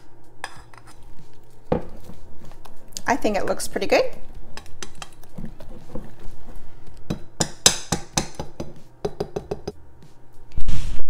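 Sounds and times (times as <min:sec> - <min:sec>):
utensil clinking against metal bowl: 0:04.5 - 0:06.4, 0:07.0 - 0:09.8.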